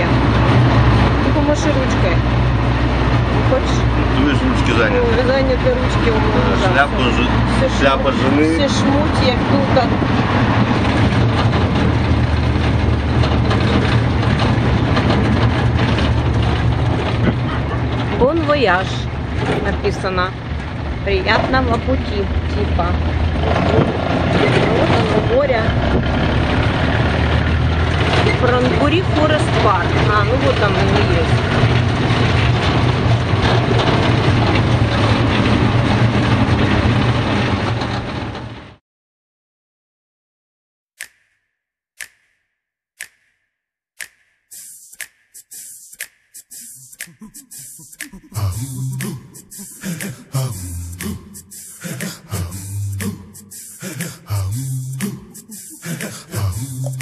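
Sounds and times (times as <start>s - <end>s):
low engine hum: 0.0s - 38.7s, 47.5s - 57.0s
road and wind noise: 0.0s - 38.8s
dense rattling: 0.2s - 22.0s.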